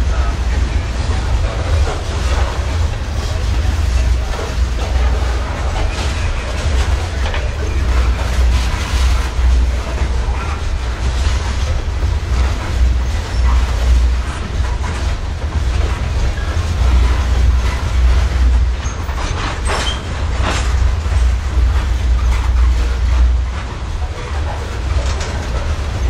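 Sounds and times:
freight train wheels rumbling: 0.0s - 26.0s.

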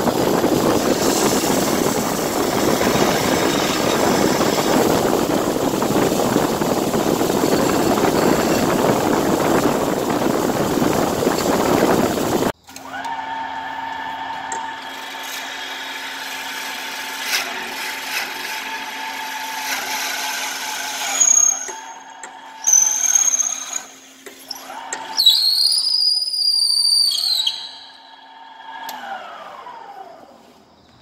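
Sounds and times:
lathe motor hum: 0.0s - 25.1s
high-pitched squeals: 0.1s - 12.6s, 21.0s - 30.5s.

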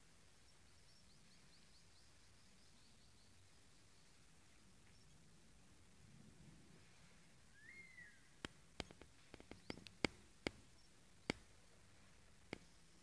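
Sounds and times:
whistled bird call: 7.5s - 8.4s
sharp clicks and snaps: 8.4s - 11.6s, 12.5s - 12.7s.

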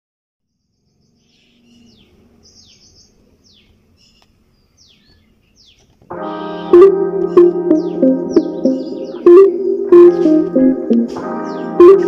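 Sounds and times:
high bird trills: 6.3s - 10.4s
downward-sweeping whistled bird notes: 7.3s - 10.5s.

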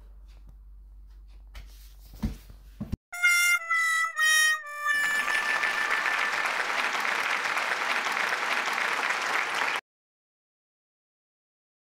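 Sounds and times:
held musical notes: 3.2s - 7.5s
applause: 4.9s - 9.8s.

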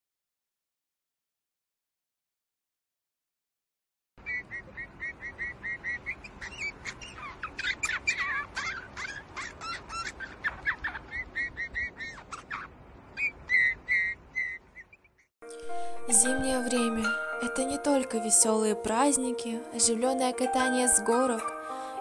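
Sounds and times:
small birds chirping: 4.2s - 15.3s.

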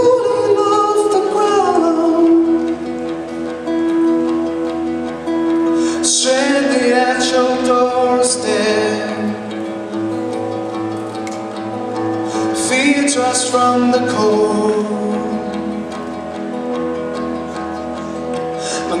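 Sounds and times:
man singing: 0.0s - 3.0s, 5.8s - 9.7s, 12.4s - 16.2s, 18.6s - 19.0s
acoustic guitar strummed: 0.0s - 19.0s.

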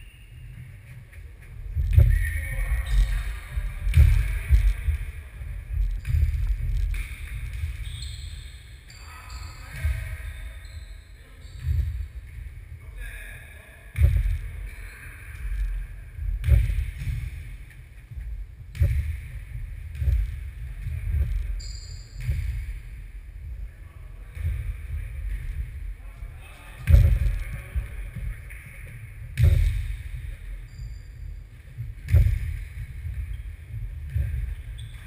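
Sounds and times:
players' voices: 0.8s - 17.0s, 23.5s - 30.7s
shoes squeaking on floor: 6.0s - 12.0s, 20.9s - 22.6s, 30.6s - 33.5s, 34.2s - 35.0s.

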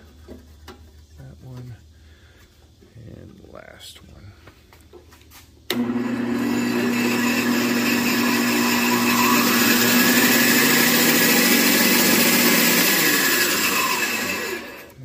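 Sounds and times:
band saw motor hum: 5.7s - 15.0s
saw blade whirring: 5.7s - 15.0s.

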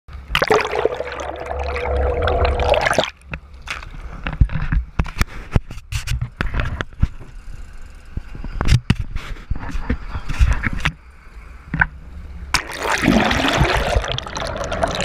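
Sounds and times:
steady hum: 0.1s - 3.6s
water rushing over camera housing: 12.5s - 15.0s.

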